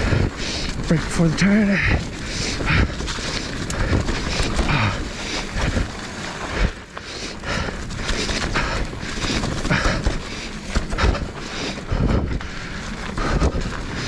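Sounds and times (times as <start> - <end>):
bike knocks and rattles: 0.0 - 14.0
tyre and trail noise: 0.0 - 14.0
wind buffeting microphone: 7.4 - 14.0.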